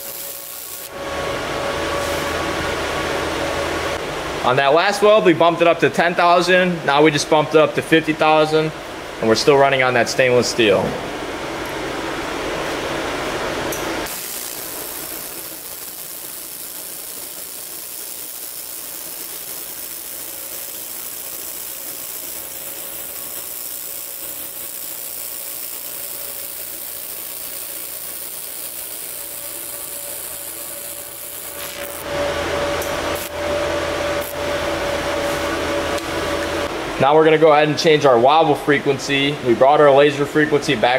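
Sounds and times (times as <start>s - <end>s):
laser welder hissing: 0.0s - 1.0s, 14.0s - 32.2s, 32.9s - 34.6s
fan hum: 0.0s - 40.9s.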